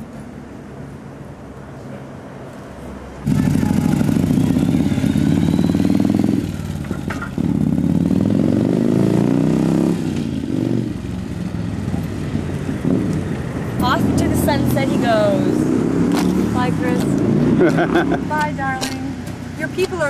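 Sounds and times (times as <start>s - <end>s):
motorcycle engine accelerating: 3.2s - 18.4s.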